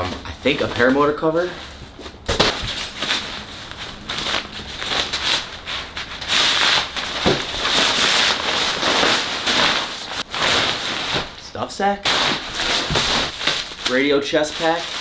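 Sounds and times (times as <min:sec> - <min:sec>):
synthetic fabric rustling and crackling: 0:00.0 - 0:15.0.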